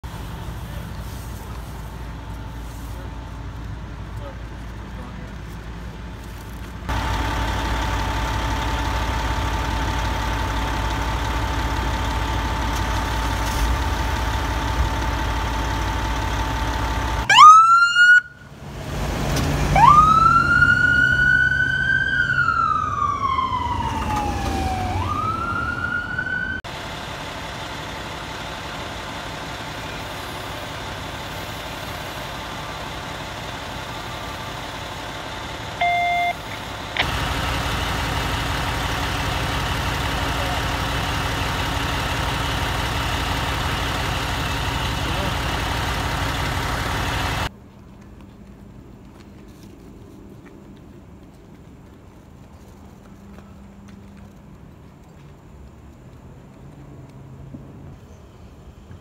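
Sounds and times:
heavy vehicle engine running: 0:00.0 - 0:17.5, 0:18.2 - 0:49.7
ambulance siren wailing: 0:17.2 - 0:18.5, 0:19.7 - 0:26.7.

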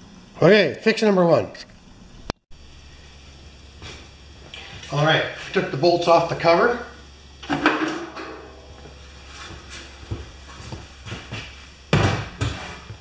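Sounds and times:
metal cover knocks and rattles: 0:07.4 - 0:08.9
heavy thumps: 0:07.4 - 0:12.6.

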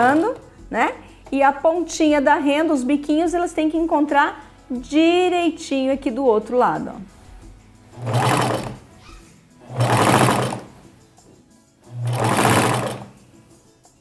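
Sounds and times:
sewing machine running: 0:07.9 - 0:08.9, 0:09.6 - 0:10.8, 0:11.9 - 0:13.2.

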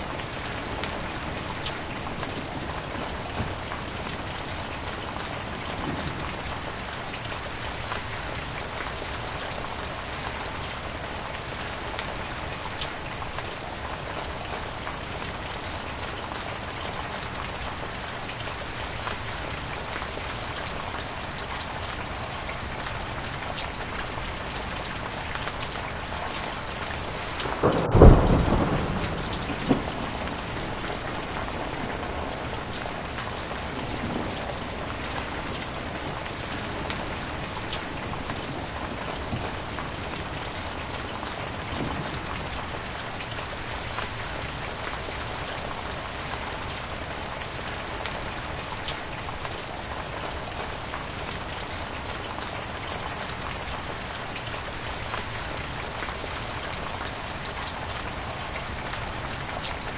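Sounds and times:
heavy rain falling: 0:00.0 - 0:59.9
thunderclap: 0:05.5 - 0:06.6, 0:27.3 - 0:35.4.

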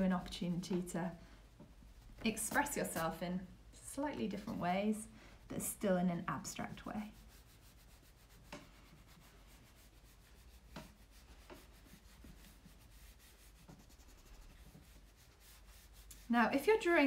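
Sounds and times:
eraser rubbing on paper: 0:02.3 - 0:03.2, 0:04.2 - 0:04.8, 0:06.4 - 0:17.0
soft taps: 0:10.7 - 0:11.7.

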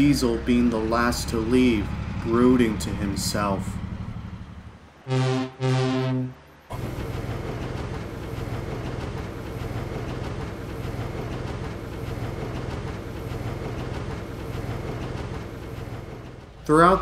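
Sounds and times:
diesel locomotive engine running: 0:00.0 - 0:17.0.

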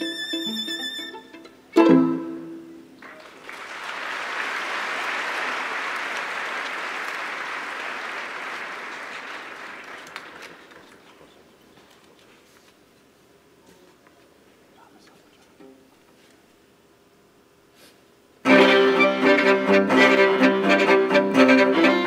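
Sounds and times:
string quartet chord: 0:00.0 - 0:02.8, 0:18.4 - 0:22.0
audience applause: 0:03.0 - 0:11.2.

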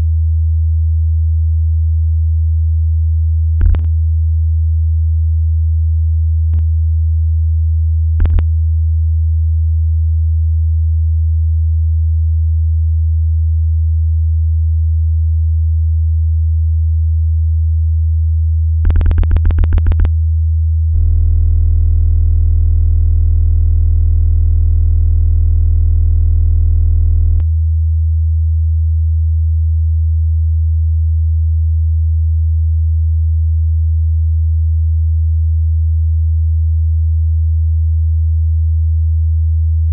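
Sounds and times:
low sine-tone hum: 0:00.0 - 0:39.9
electronic clicks: 0:03.6 - 0:03.9, 0:08.2 - 0:08.4, 0:18.9 - 0:20.1
buzzy electronic tone: 0:18.9 - 0:20.1, 0:21.0 - 0:27.4.

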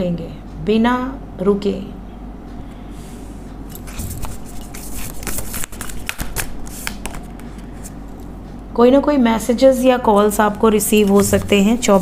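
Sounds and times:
low steady hum: 0:00.0 - 0:12.0
cards being shuffled: 0:03.9 - 0:08.0.

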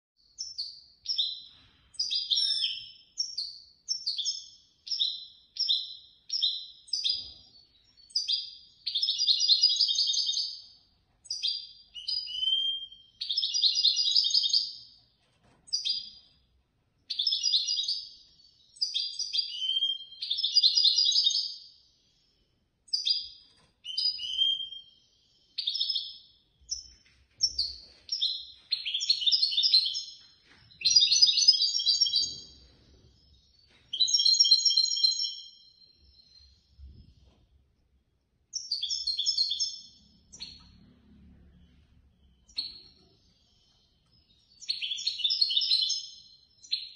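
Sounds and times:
goldfinch twittering song: 0:17.0 - 0:36.9, 0:38.5 - 0:40.8, 0:42.2 - 0:46.9.

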